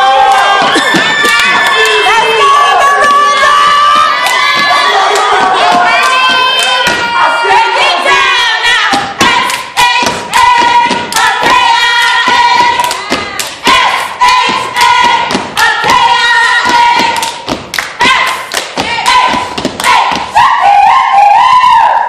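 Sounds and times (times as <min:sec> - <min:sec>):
voices yelling and chanting: 0:00.0 - 0:17.2
hands clapping in rhythm: 0:00.2 - 0:02.0, 0:03.0 - 0:07.2, 0:08.9 - 0:20.4.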